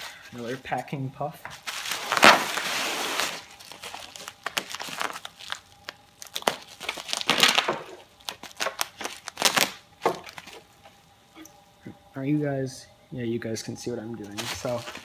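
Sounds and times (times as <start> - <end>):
bubble wrap crinkling: 1.5 - 10.8, 14.2 - 15.0.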